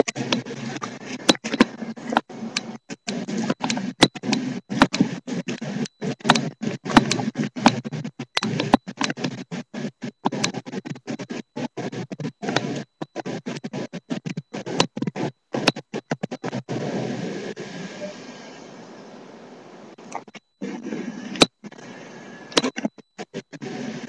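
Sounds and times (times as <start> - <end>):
outdoor noise: 16.5 - 23.0.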